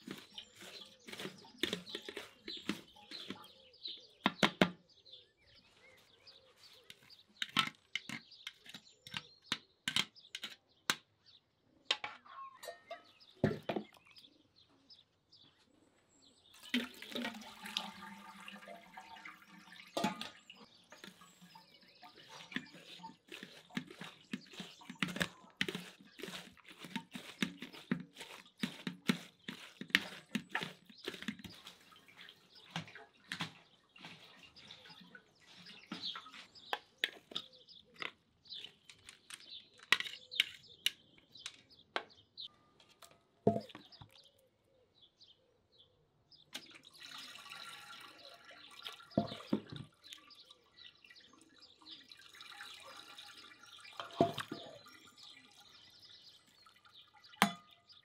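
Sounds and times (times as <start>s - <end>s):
splashes and drips: 16.5s - 37.4s, 46.6s - 58.0s
liquid pouring: 16.6s - 33.4s, 46.7s - 50.6s, 51.8s - 57.6s.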